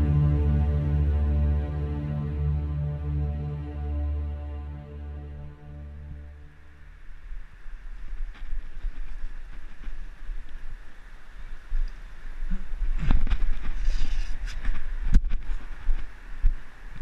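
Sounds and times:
wind buffeting microphone: 0:06.4 - 0:17.0.

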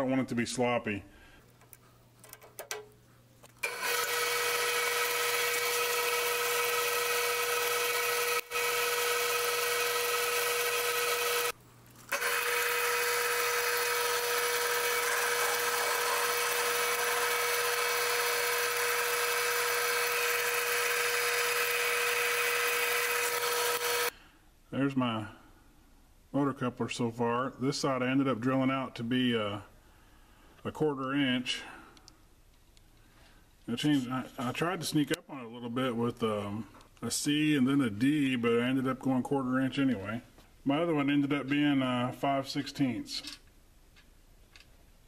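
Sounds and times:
drill boring into steel: 0:03.6 - 0:24.1
metal lathe whining: 0:03.6 - 0:24.1.

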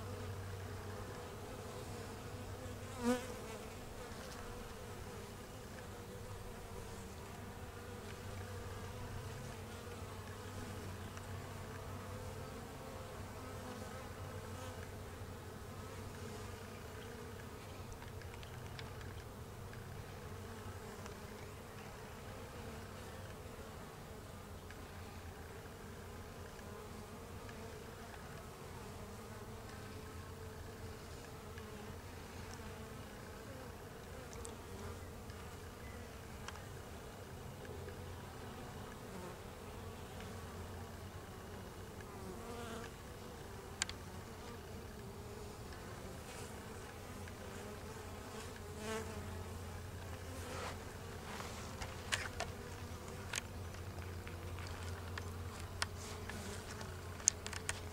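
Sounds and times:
bees buzzing: 0:00.0 - 0:57.9.

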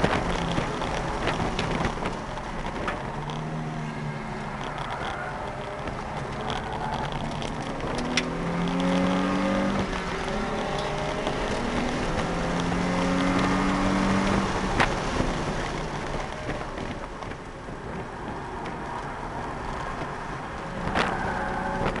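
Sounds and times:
car engine pulling: 0:00.0 - 0:22.0
road and tyre noise: 0:00.0 - 0:22.0.

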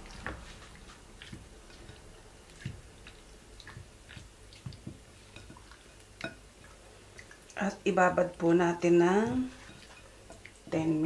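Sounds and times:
wet squelches of stirred chicken: 0:00.0 - 0:11.0.

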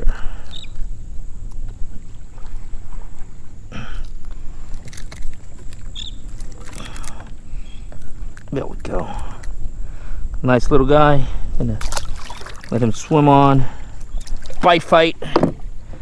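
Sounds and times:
splashes: 0:11.7 - 0:15.6.

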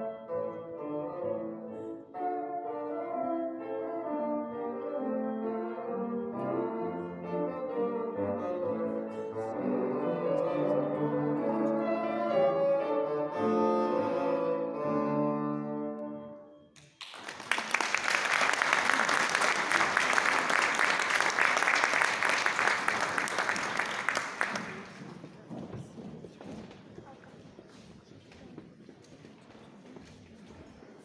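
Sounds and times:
bassoon with piano: 0:00.0 - 0:16.6
audience applauding: 0:16.8 - 0:25.3.

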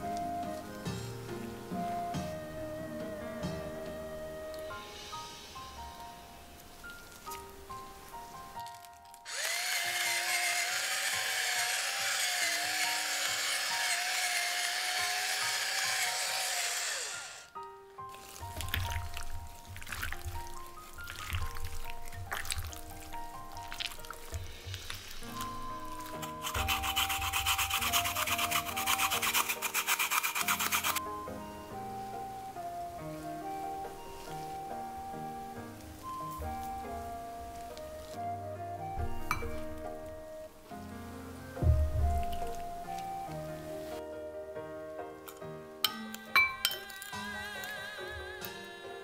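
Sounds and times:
soft background music: 0:00.0 - 0:49.0
potato grating rasps: 0:09.3 - 0:17.5, 0:23.6 - 0:31.0
electric pepper grinder motor: 0:09.3 - 0:17.6, 0:24.7 - 0:31.0.

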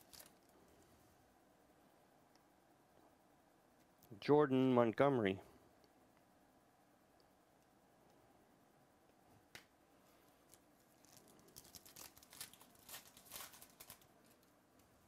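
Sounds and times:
foil wrapper tearing and crinkling: 0:00.0 - 0:00.5, 0:10.5 - 0:14.5.

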